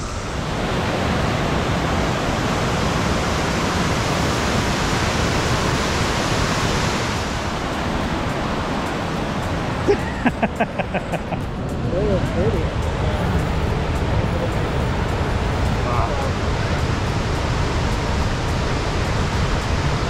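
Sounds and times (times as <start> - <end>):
white water rushing over rocks: 0.0 - 20.0.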